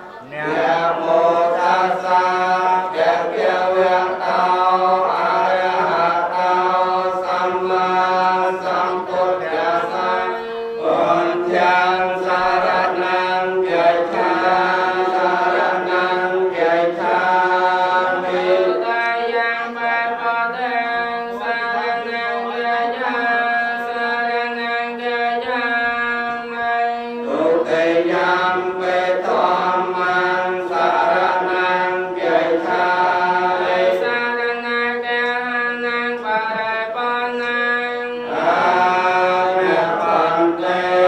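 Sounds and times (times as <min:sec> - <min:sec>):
voices chanting into a microphone: 0:00.0 - 0:41.0.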